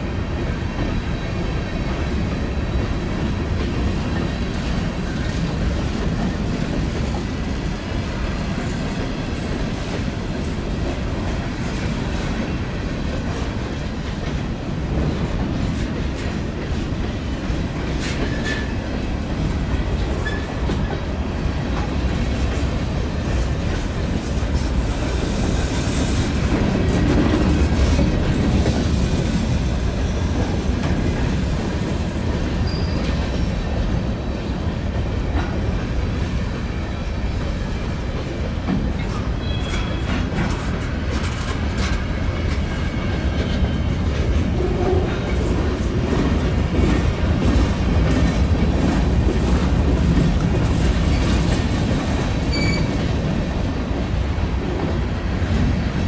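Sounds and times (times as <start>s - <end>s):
railcars rumbling past: 0.0s - 56.0s
high wheel squeals: 32.6s - 33.1s, 52.5s - 53.0s.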